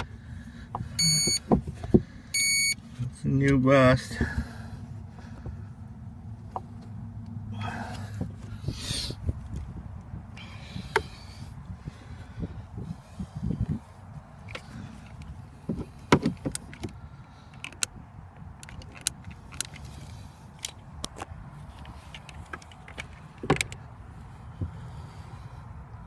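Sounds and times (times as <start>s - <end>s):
handling clicks and knocks: 14.4s - 23.9s.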